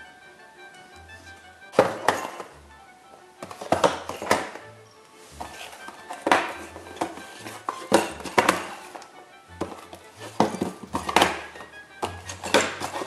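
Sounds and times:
background music: 0:00.0 - 0:13.0
cardboard boxes clattering on table: 0:01.8 - 0:02.5, 0:03.4 - 0:04.6, 0:05.4 - 0:09.0, 0:09.6 - 0:13.0.

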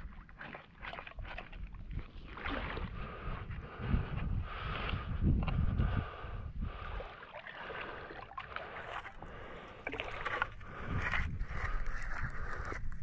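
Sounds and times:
river water sloshing: 0:00.0 - 0:03.2, 0:06.8 - 0:12.2
wooden handle scraping clay bottom: 0:09.9 - 0:12.9.

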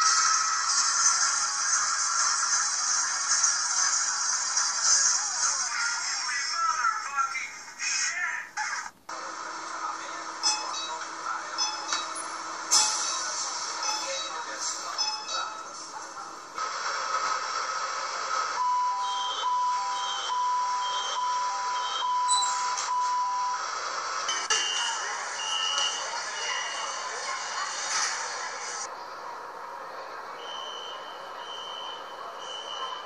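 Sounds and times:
electronic two-tone door beep: 0:18.6 - 0:23.6
train noise: 0:23.5 - 0:33.0.

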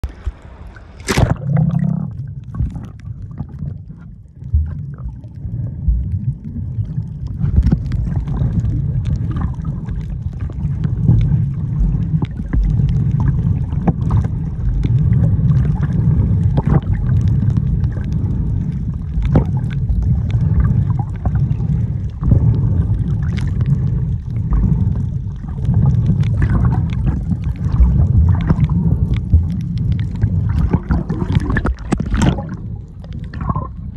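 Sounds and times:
camera splashing into water: 0:00.0 - 0:01.7, 0:30.6 - 0:32.6
underwater clicks and crackles: 0:00.0 - 0:33.9
underwater water rumble: 0:00.0 - 0:33.9.

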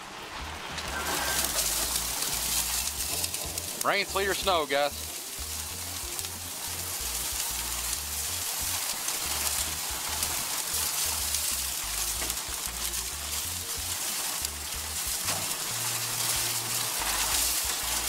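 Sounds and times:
heavy rain pouring: 0:00.0 - 0:18.0.

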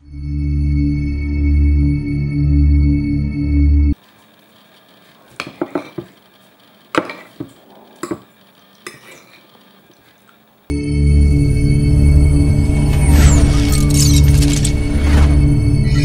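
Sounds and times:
music: 0:00.0 - 0:04.0, 0:10.7 - 0:16.0
fork scraping ceramic plate: 0:05.3 - 0:06.2, 0:07.0 - 0:10.2.

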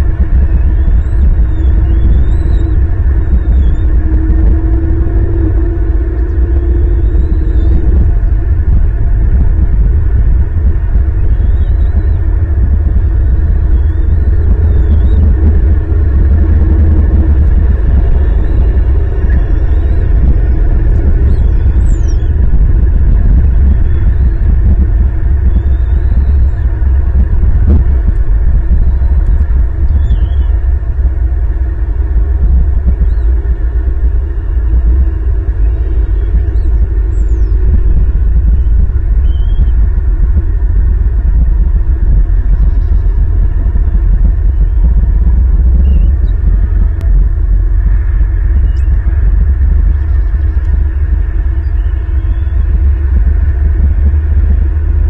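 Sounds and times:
wind buffeting microphone: 0:00.0 - 0:55.0
faint high bird chirps: 0:00.5 - 0:03.9, 0:11.2 - 0:12.2, 0:21.1 - 0:22.4, 0:25.4 - 0:26.6, 0:29.9 - 0:30.6, 0:35.6 - 0:37.6, 0:38.5 - 0:39.7, 0:51.5 - 0:52.7.

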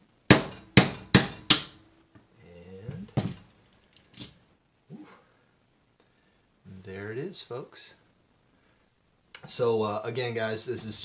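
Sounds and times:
light ringing metal clink: 0:03.4 - 0:04.5.

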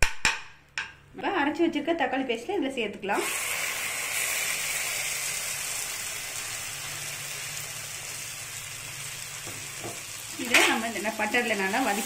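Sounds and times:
butter sizzling in a frying pan: 0:03.2 - 0:12.0.

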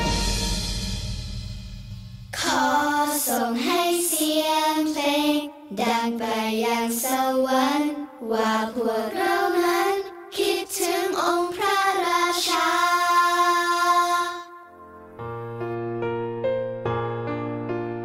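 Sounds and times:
child singing a slow song: 0:02.4 - 0:14.7.

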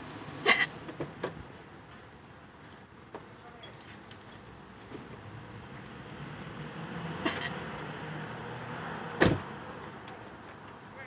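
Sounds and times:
woman hiccuping: 0:00.5 - 0:00.7, 0:07.2 - 0:07.5
keys jangling: 0:03.5 - 0:04.9.

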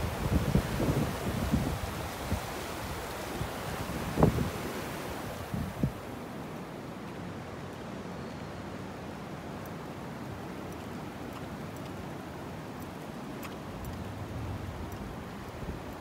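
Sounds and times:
fast-flowing river rushing: 0:00.0 - 0:07.6.

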